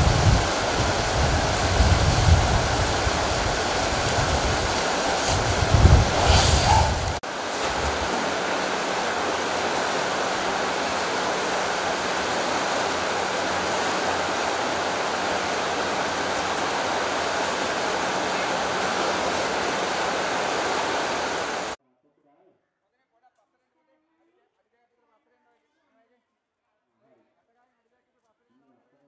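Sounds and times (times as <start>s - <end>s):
deep rumble: 0.0s - 8.6s
stream flowing: 0.0s - 21.8s.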